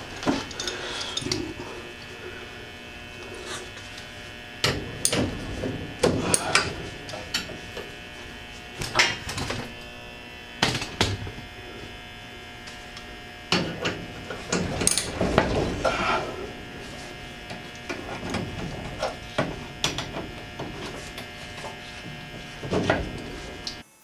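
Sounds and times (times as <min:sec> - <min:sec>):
fluorescent light buzz: 0:00.0 - 0:24.0
metal clanks and knocks: 0:04.6 - 0:07.6.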